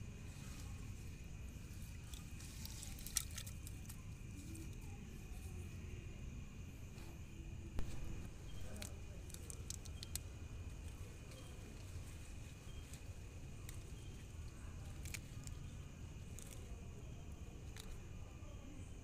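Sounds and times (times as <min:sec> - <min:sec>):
low rumble: 0:07.8 - 0:08.9
scattered clicks: 0:07.8 - 0:11.5.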